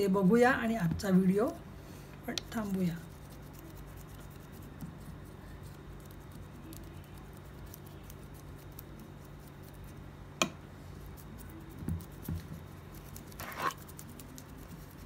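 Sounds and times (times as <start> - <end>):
wet paintbrush strokes on clay: 2.5 - 10.0, 10.8 - 15.0.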